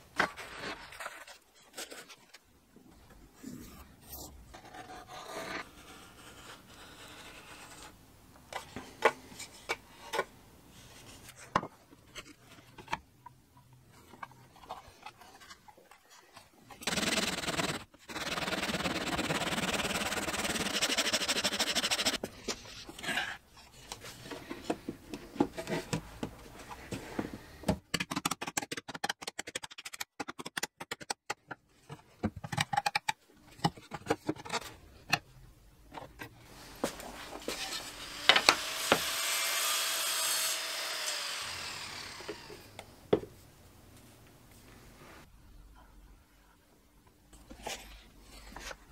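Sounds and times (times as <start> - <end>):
hand saw sawing wood: 16.8 - 22.2.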